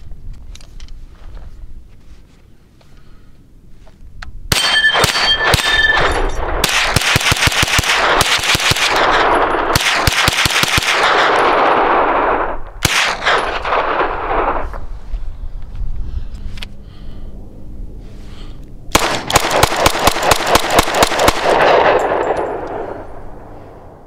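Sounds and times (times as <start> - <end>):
steel plates ringing: 4.5 - 6.4
gunshots: 4.5 - 14.9, 18.9 - 23.4.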